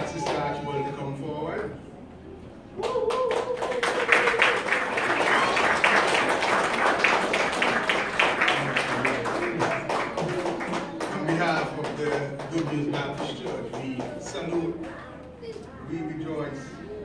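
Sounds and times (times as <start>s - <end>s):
congregation applauding: 2.8s - 14.8s.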